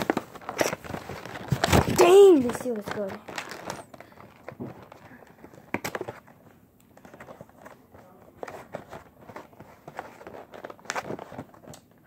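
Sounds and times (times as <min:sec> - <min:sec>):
plastic packaging crinkling: 0:00.0 - 0:06.3, 0:07.0 - 0:12.0.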